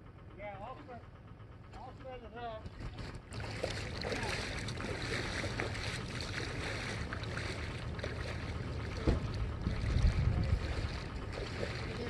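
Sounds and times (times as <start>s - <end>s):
steady low rumble: 0.0s - 12.0s
wind buffeting microphone: 4.9s - 12.0s.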